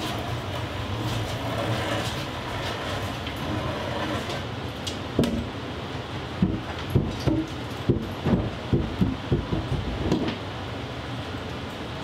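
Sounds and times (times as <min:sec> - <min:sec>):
wooden boards knocking together: 0:06.4 - 0:10.4.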